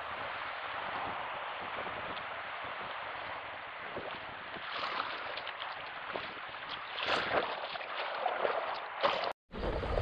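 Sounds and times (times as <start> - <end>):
wind rumble on microphone: 0.0 - 7.8, 9.5 - 10.0
rushing river water: 0.0 - 10.0
water splashes and knocks: 1.7 - 9.4.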